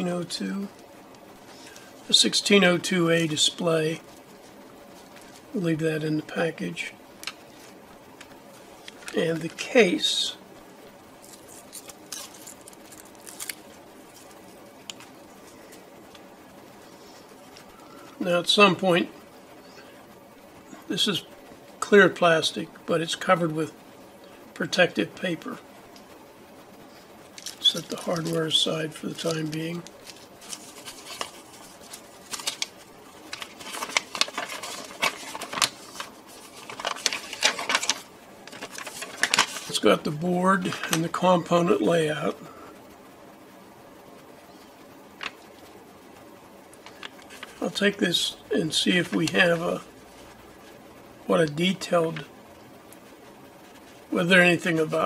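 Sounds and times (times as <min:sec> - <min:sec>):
paper rustling: 0:07.2 - 0:09.7, 0:27.3 - 0:39.9, 0:46.8 - 0:47.8
plastic bags crinkling: 0:11.2 - 0:14.3, 0:27.3 - 0:28.5, 0:29.1 - 0:39.8
tape peeling crackle: 0:11.2 - 0:16.2, 0:27.3 - 0:28.5, 0:29.1 - 0:39.8.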